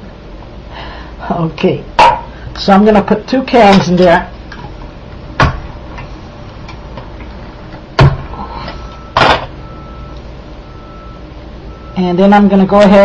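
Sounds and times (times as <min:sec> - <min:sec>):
kitchenware clunks: 0:09.1 - 0:09.6.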